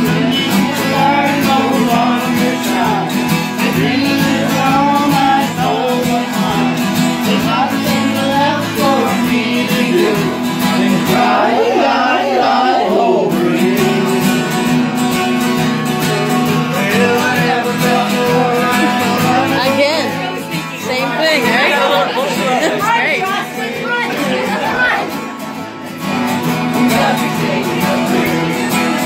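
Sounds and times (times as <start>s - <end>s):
person singing: 0.0s - 25.0s, 26.5s - 29.0s
acoustic guitar strumming: 0.0s - 29.0s.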